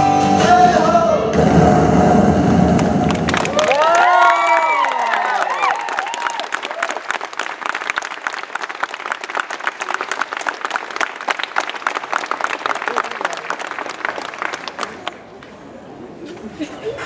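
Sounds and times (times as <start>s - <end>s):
crowd applauding: 2.6s - 15.5s
sharp close claps: 2.7s - 3.8s.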